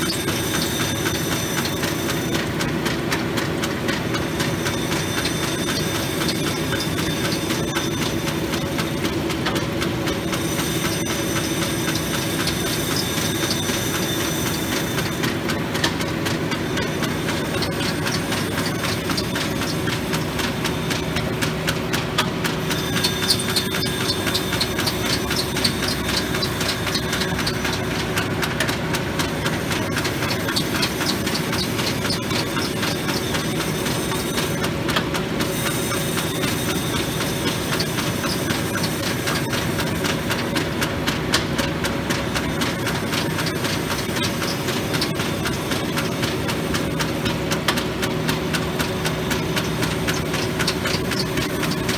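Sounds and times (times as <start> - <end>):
surface grinder grinding: 3.5 - 34.7.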